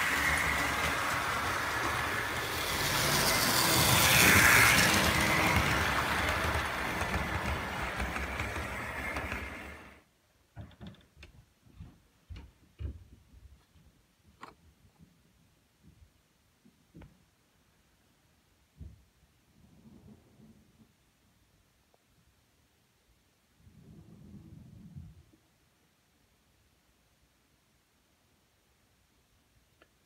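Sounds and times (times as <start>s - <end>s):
model train running on track: 0.0s - 10.0s.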